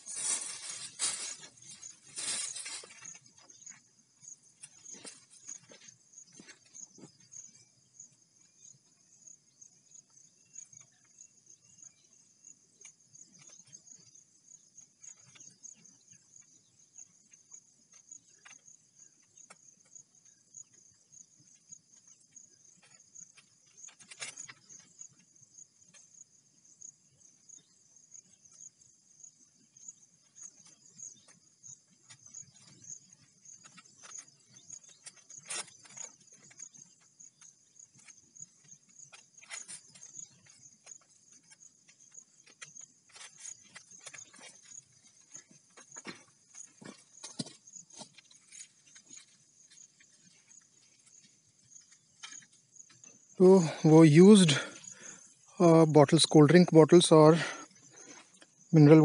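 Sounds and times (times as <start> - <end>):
insects chirping in a trill: 0.0 - 59.0
faint clicks and scrapes: 21.9 - 26.2, 30.3 - 53.3.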